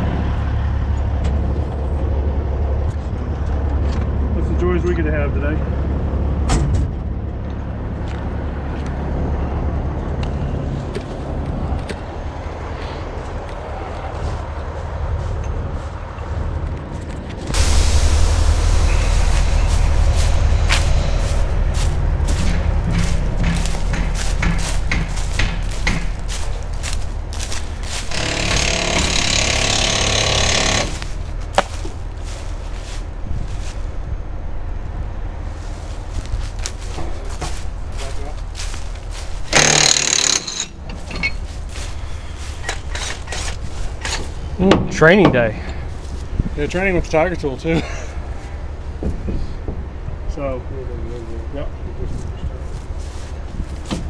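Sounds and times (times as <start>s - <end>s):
diesel truck engine running: 0.0s - 54.0s
loud rasping power tool: 27.8s - 31.3s, 39.5s - 40.8s.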